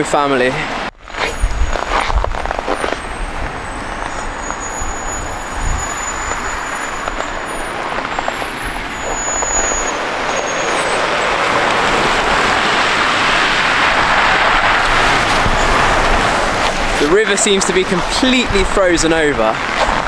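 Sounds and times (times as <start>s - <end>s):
cars passing: 0.0s - 20.0s.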